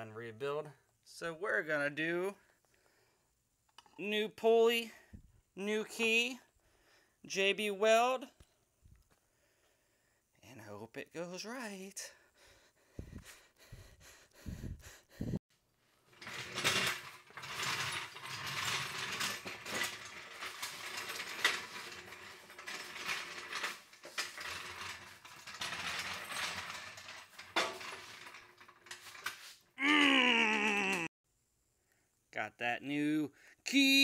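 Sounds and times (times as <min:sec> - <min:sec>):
metal tools clattering: 0:16.1 - 0:29.6.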